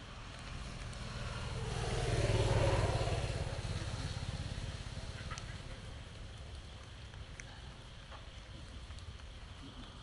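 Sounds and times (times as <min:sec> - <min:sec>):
vehicle driving past: 0:00.0 - 0:06.1.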